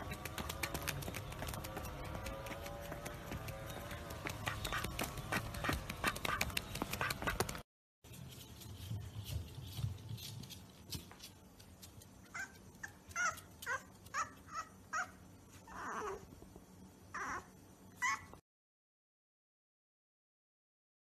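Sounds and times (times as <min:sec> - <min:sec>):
puppy yelping: 0:12.2 - 0:16.3, 0:17.1 - 0:18.4
puppy whining howls: 0:12.3 - 0:16.3, 0:17.1 - 0:18.4.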